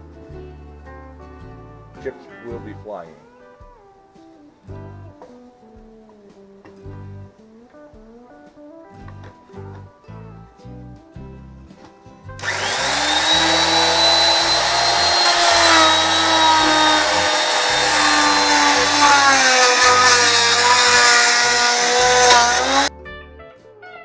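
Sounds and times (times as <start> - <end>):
power tool cutting wood: 12.4 - 22.9.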